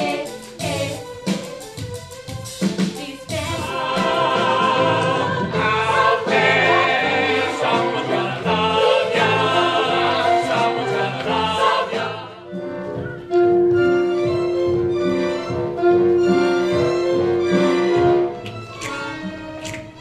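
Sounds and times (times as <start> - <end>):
group of voices singing: 0.0 - 1.1, 3.0 - 12.6
backing music: 0.0 - 20.0.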